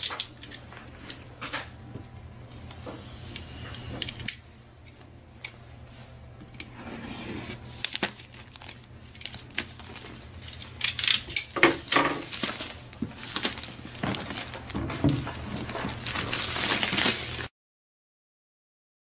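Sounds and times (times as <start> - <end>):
shrink wrap crinkling and tearing: 7.5 - 17.5.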